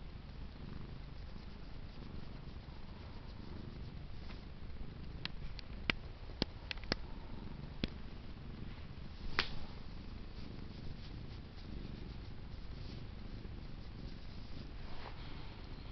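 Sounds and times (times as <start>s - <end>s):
cat purring: 0.0s - 15.9s
sharp clicks: 5.2s - 7.0s.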